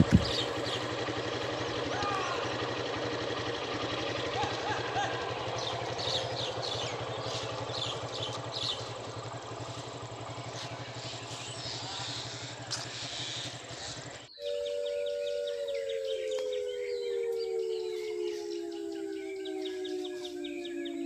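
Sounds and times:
birds chirping: 0.0 - 21.0
low steady engine hum: 0.0 - 21.0
two-note tone dropping in pitch: 14.4 - 21.0.

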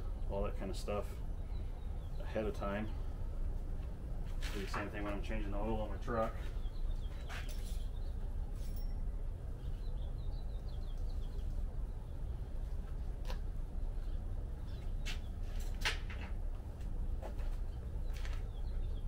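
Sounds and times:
faint bird chirping: 0.0 - 3.4, 5.3 - 15.6, 17.4 - 19.0
steady low rumble: 0.0 - 19.0.

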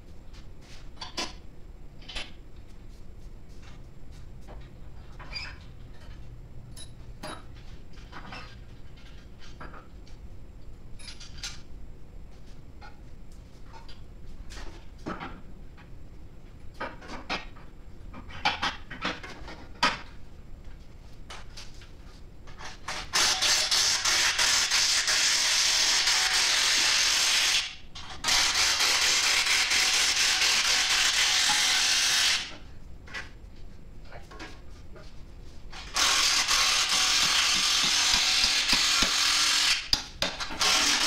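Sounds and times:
power tool whirring: 23.1 - 32.5, 35.8 - 40.0, 40.6 - 41.0.

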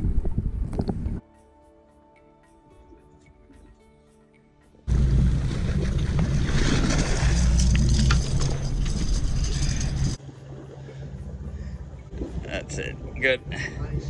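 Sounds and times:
boat engines humming: 4.9 - 14.0
rush of wind and water: 4.9 - 14.0.

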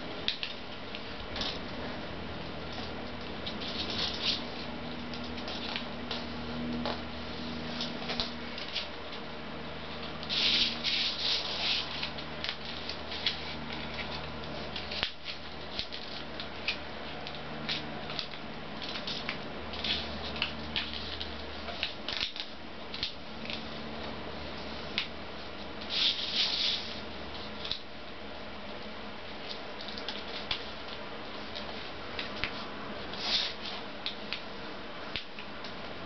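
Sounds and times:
low steady hum: 0.0 - 36.0
paper rustling and crinkling: 2.7 - 7.0, 10.3 - 23.7.

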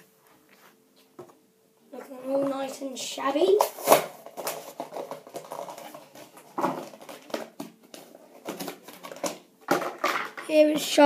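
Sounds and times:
toy packaging rustling: 3.5 - 10.5.

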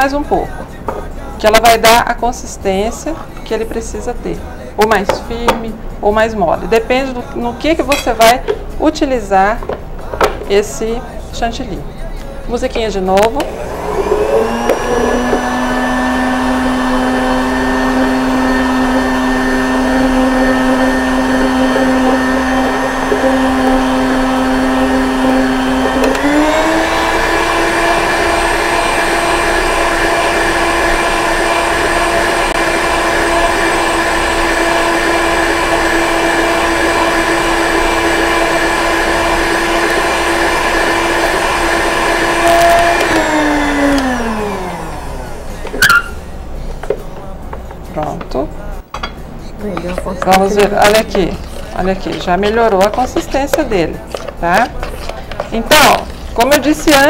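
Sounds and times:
stand mixer motor whining: 13.4 - 46.2.

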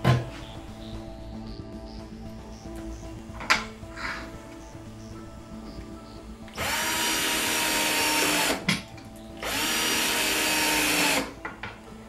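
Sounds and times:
cordless drill whining: 6.5 - 8.7, 9.4 - 11.4.

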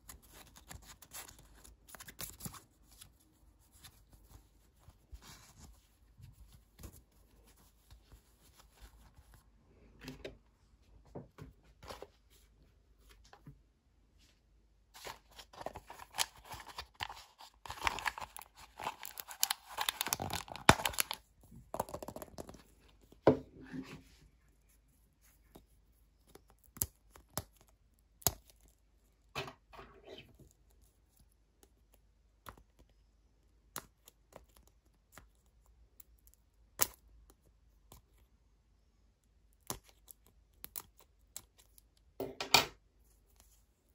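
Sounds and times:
plastic packaging tearing and crinkling: 15.0 - 21.2.

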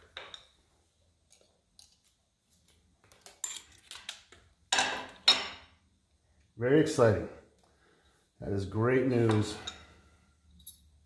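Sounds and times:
light metallic clicks and clinks: 9.2 - 11.0.

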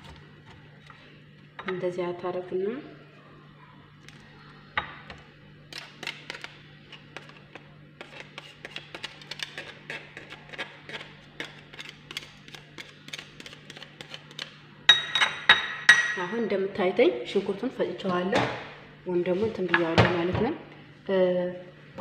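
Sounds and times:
steady low hum: 0.0 - 22.0
onion grating ticks: 8.0 - 14.6.

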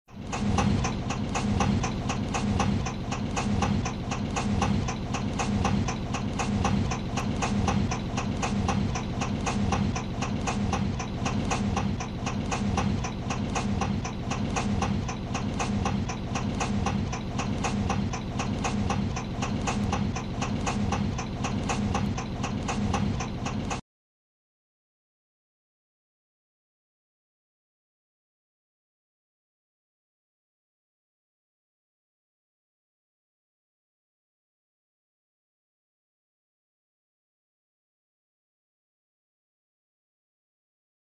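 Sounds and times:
car engine idling with knock: 0.1 - 23.8.

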